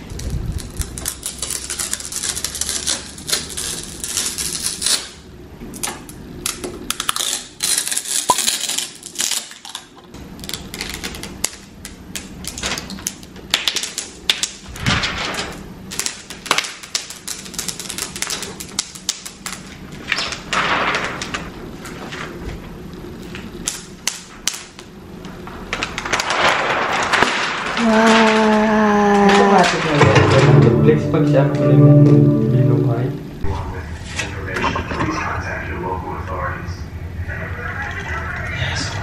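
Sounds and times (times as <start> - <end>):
tearing rustles: 0.0 - 5.2
plastic film peeling and crackling: 0.0 - 30.0.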